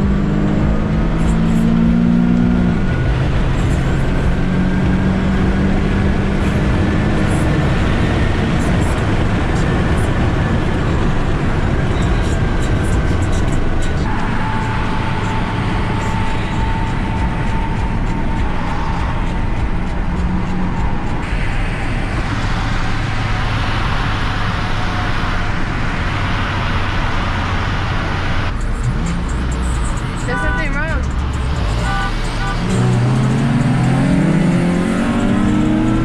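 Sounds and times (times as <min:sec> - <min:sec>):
car engine and road noise: 0:00.0 - 0:36.0
thin whine: 0:07.4 - 0:35.5.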